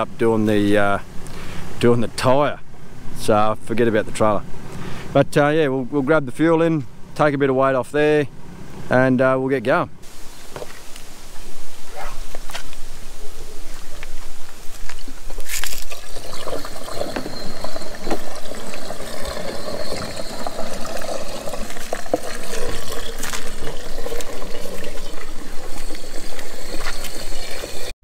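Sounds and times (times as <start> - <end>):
liquid pouring into fuel filler: 15.6 - 27.9.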